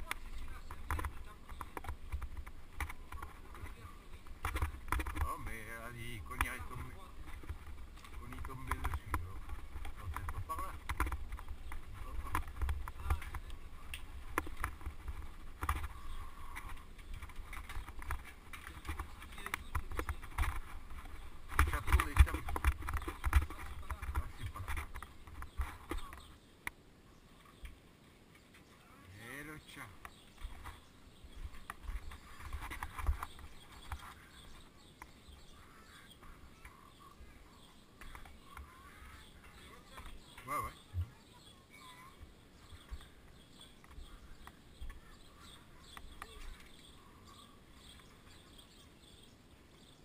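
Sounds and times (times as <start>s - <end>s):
bike rolling over cobbles: 0.0s - 26.3s
footsteps on stone paving: 0.0s - 26.4s, 29.9s - 50.0s.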